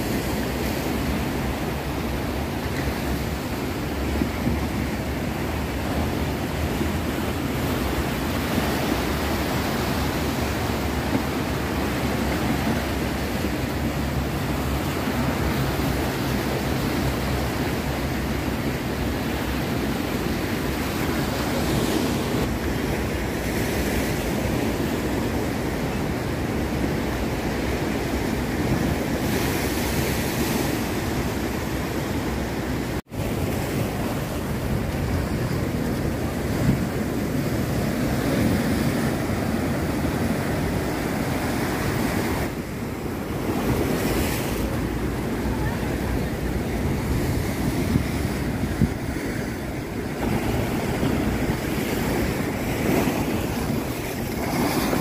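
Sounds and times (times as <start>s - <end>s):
waves breaking on concrete: 33.1s - 55.0s.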